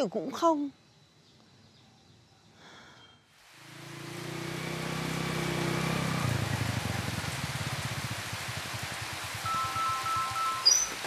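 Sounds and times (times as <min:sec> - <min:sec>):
heavy rain falling: 0:03.4 - 0:11.0
motorcycle engine: 0:03.5 - 0:11.0.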